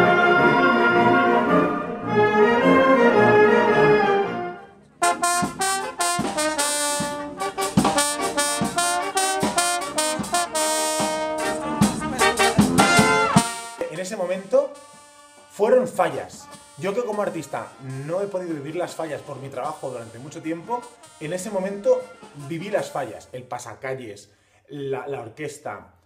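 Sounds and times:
brass band playing lively tune: 0.0 - 23.1
sharp percussion hits: 5.0 - 15.5, 16.4 - 22.6.

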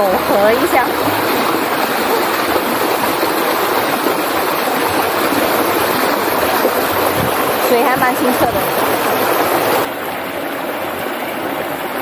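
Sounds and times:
river water rushing over rocks: 0.0 - 12.0.

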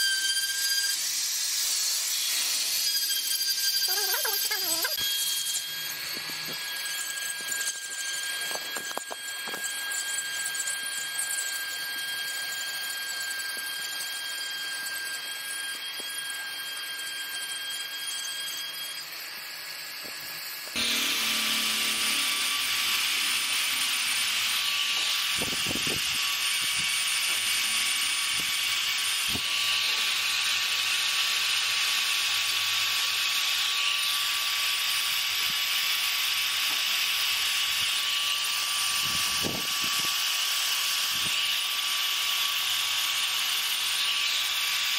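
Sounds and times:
bit grinding wood: 0.0 - 10.6, 20.6 - 35.6
rotary tool whining: 0.0 - 44.9.

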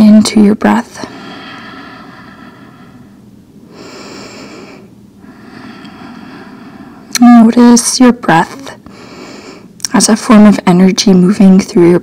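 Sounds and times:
person breathing: 1.0 - 7.1, 8.9 - 9.7.

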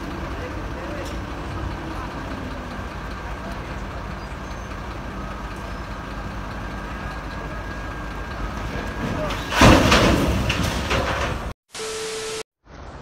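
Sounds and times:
heavy diesel engines running: 0.0 - 11.5.

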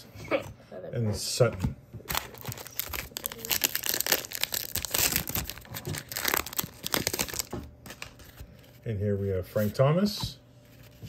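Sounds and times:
card pack wrapper tearing and crinkling: 2.1 - 8.3.

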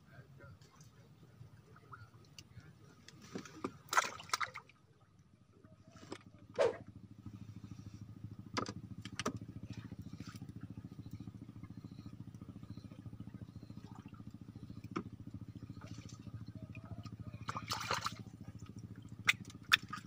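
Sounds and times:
small engine puttering: 5.7 - 20.0.

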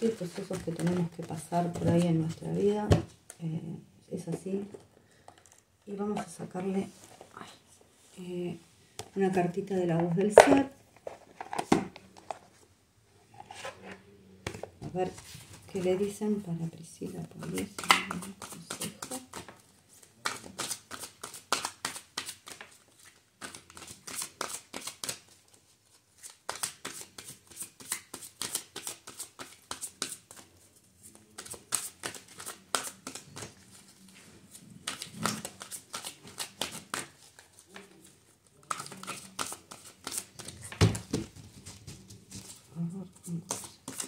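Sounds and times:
cards being shuffled: 0.0 - 2.5, 17.3 - 25.5, 26.2 - 44.0.

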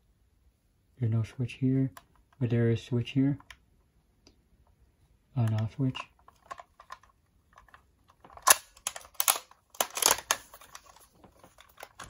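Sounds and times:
toy handling clicks and clacks: 5.4 - 12.0.

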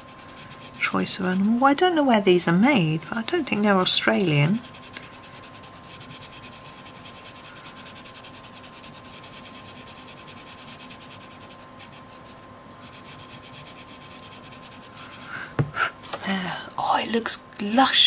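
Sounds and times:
crayon scratching on paper: 0.0 - 1.4, 3.6 - 15.3.

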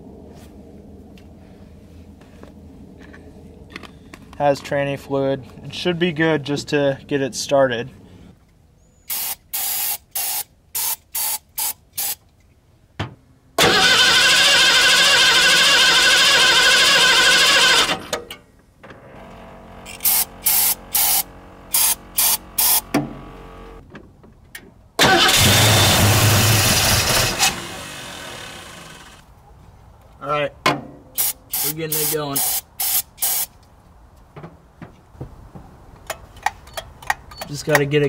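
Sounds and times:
car engine firing and running: 19.0 - 23.8, 25.0 - 29.2.

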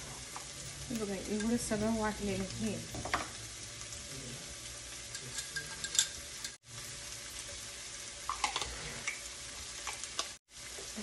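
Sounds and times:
onions sizzling in oil: 0.0 - 11.0
metal spoon clinking glass bowl: 5.1 - 6.6.

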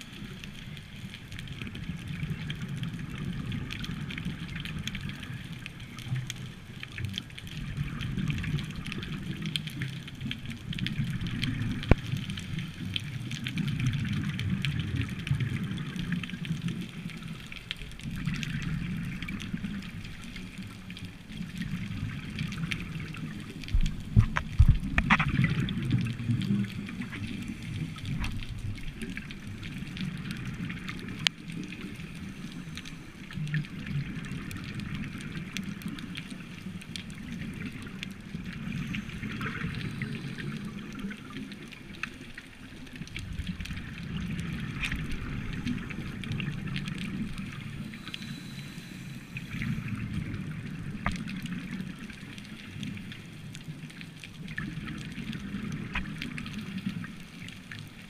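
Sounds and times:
underwater regulator bubbles gurgling: 0.0 - 58.0.

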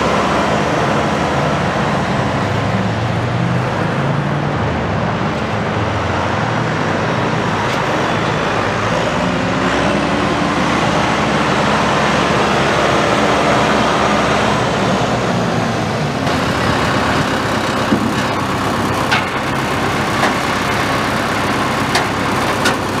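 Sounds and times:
tractor diesel engine running: 0.0 - 23.0
tyres on gravel: 16.2 - 23.0.

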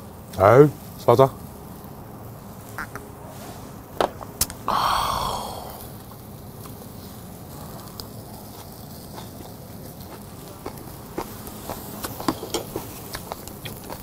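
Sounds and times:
faint background hiss: 0.0 - 14.0
loud breathy exhale: 4.7 - 5.9.

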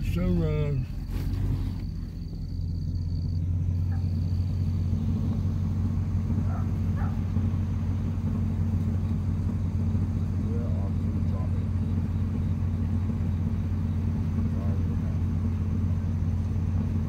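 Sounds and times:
vehicle engine and road rumble: 0.0 - 17.0.

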